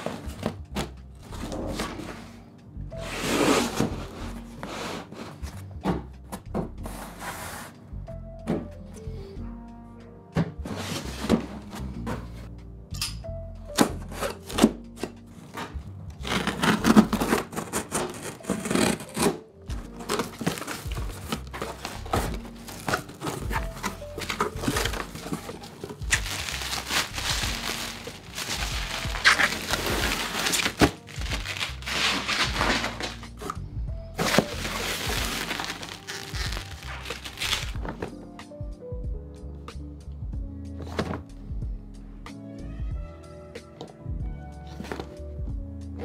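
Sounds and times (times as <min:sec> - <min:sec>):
chill music: 0:00.0 - 0:46.0
packing paper rustling: 0:15.4 - 0:33.6, 0:34.2 - 0:38.1
bubble wrap crinkling: 0:16.2 - 0:33.6, 0:34.2 - 0:38.0
tape pulled off box: 0:20.1 - 0:33.6.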